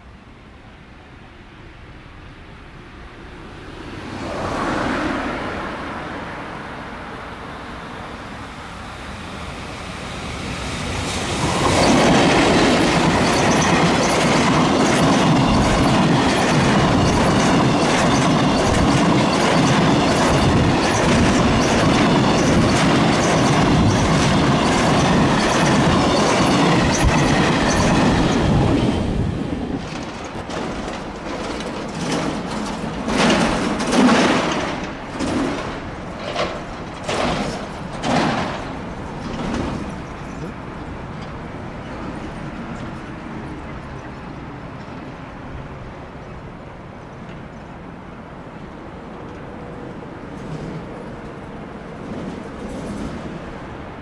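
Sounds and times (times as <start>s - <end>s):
freight train passing: 0.0s - 54.0s
wheels clattering over rail joints: 11.3s - 43.1s, 49.2s - 53.7s.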